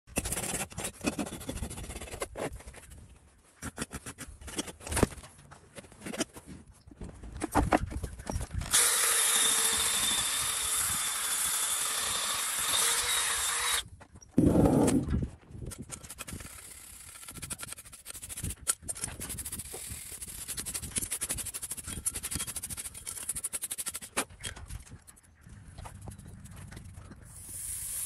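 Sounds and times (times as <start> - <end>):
power tool whirring: 8.7 - 13.9
rasp scraping hoof: 15.8 - 25.2.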